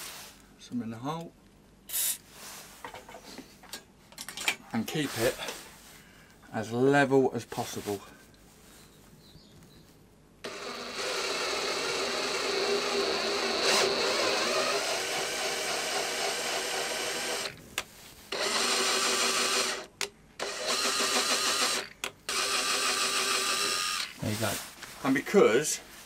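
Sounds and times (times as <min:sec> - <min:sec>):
cordless drill motor whining: 0:10.4 - 0:17.6, 0:18.3 - 0:24.2.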